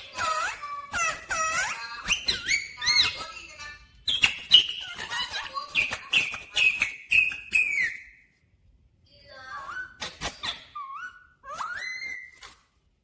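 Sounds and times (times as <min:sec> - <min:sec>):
parakeet whistling: 0:00.2 - 0:03.3, 0:04.0 - 0:08.3, 0:09.6 - 0:12.5.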